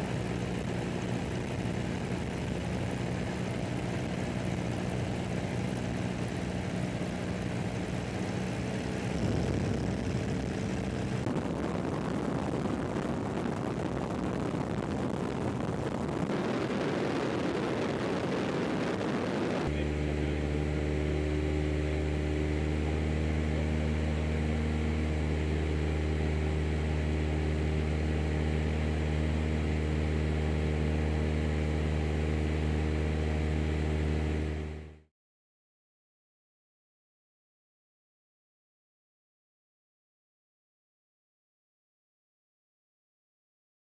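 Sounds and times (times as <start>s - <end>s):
aircraft engine drone: 0.0s - 35.0s.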